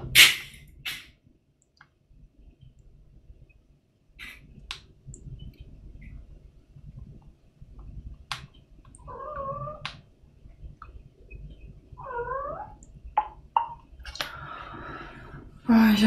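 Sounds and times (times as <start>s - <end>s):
wavering animal calls: 9.0s - 9.9s, 12.0s - 13.8s.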